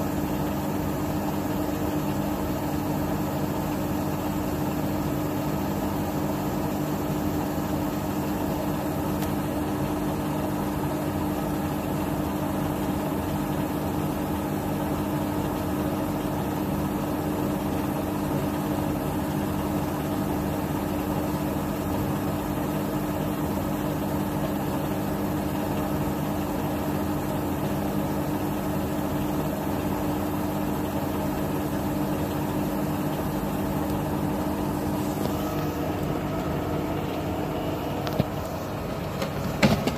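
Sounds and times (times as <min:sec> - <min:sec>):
washing machine spinning: 0:00.0 - 0:39.9.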